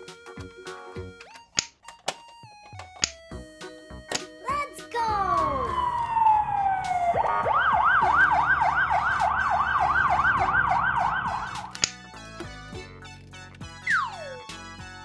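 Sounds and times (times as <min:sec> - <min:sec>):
emergency vehicle siren: 0:05.1 - 0:11.7.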